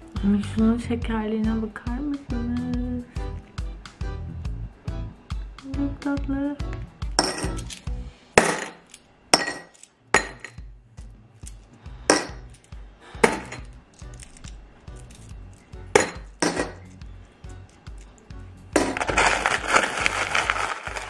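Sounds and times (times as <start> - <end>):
coins clinking into ceramic bowl: 7.2 - 10.6, 11.5 - 16.9, 18.8 - 21.0.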